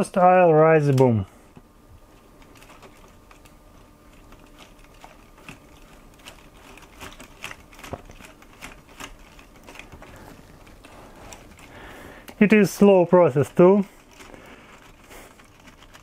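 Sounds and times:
plastic gears clicking: 4.1 - 12.4, 13.3 - 16.0.

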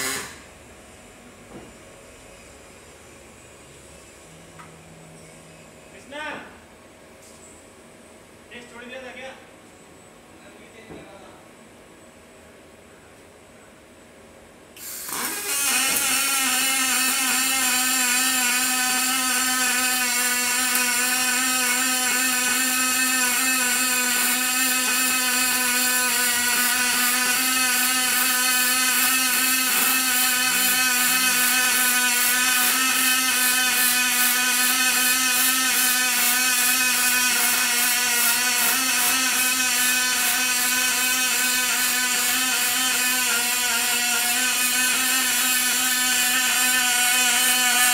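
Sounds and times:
welding arc humming and hissing: 0.0 - 0.5, 14.8 - 47.9.

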